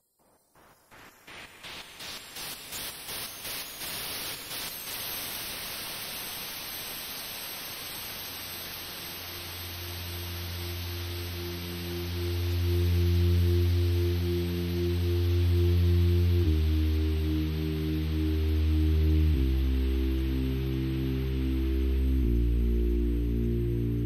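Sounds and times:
pulses of white noise: 0:00.0 - 0:24.0
steady sine tones: 0:00.0 - 0:24.0
low hum: 0:09.2 - 0:24.0.

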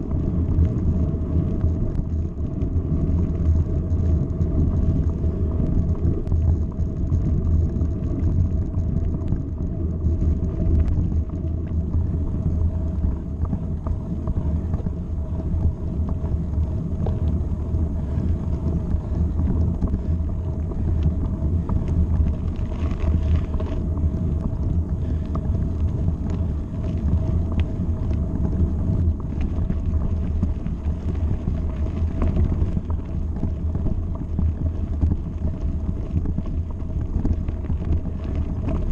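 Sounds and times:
bike tyres rolling on gravel: 0:00.0 - 0:38.9
loose stones ticking: 0:00.1 - 0:38.9.

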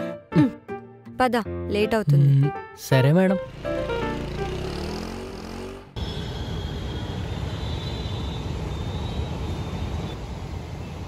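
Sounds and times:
background music: 0:00.0 - 0:05.1
street traffic: 0:03.3 - 0:11.0
elevated train running: 0:06.0 - 0:11.0
faint high wheel whine: 0:06.0 - 0:11.0.

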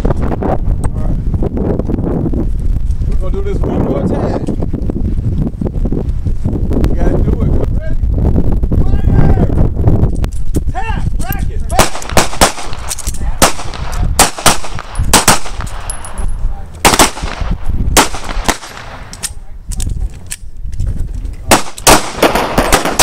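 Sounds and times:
pistol shots: 0:11.8 - 0:16.0, 0:16.8 - 0:19.4, 0:21.5 - 0:23.0.

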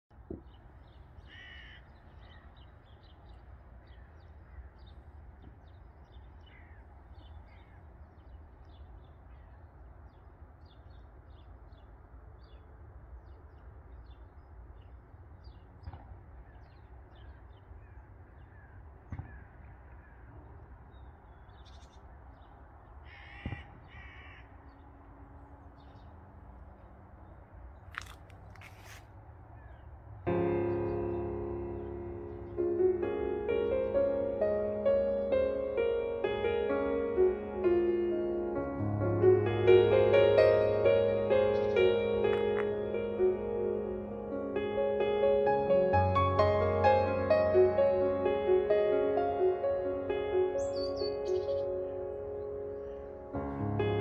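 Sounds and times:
birds chirping: 0:00.2 - 0:20.2, 0:29.6 - 0:54.0
harsh bird calls: 0:00.5 - 0:03.3, 0:46.0 - 0:53.1.

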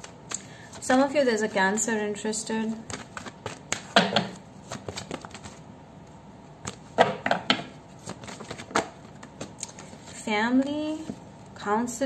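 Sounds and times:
cards riffling and snapping: 0:00.0 - 0:00.6, 0:02.8 - 0:05.6, 0:08.0 - 0:10.2
cards handled: 0:02.8 - 0:05.6, 0:08.0 - 0:10.2.

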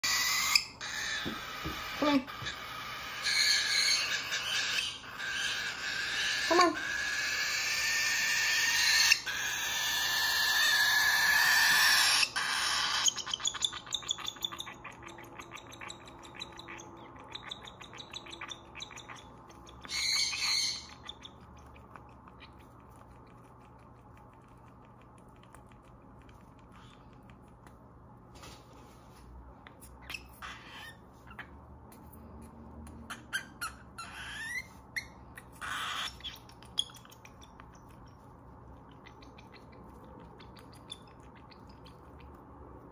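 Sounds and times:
baby bird raspy screech: 0:00.0 - 0:13.5, 0:19.9 - 0:21.0, 0:30.1 - 0:31.0, 0:33.1 - 0:36.3.

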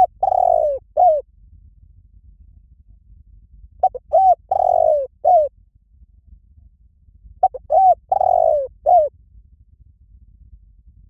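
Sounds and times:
dove cooing: 0:00.0 - 0:01.2, 0:03.8 - 0:05.5, 0:07.4 - 0:09.1.

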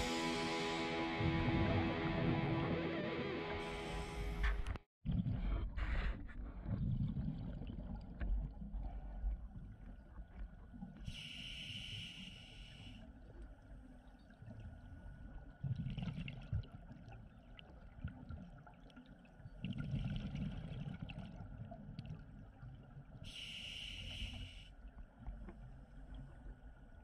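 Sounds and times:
low bubbling rumble: 0:04.4 - 0:10.9
diver breathing through regulator: 0:11.1 - 0:13.0, 0:23.3 - 0:24.7.

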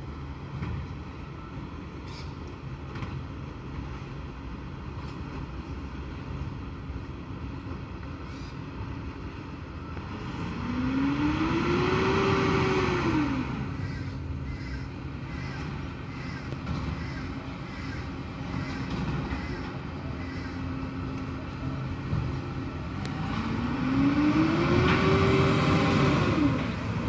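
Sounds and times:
truck diesel engine revving: 0:10.1 - 0:14.2, 0:20.4 - 0:27.0.

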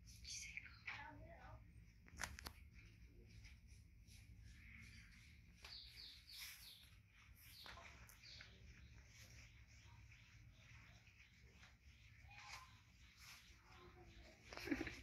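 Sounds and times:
faint high bird chirps: 0:04.2 - 0:15.0.

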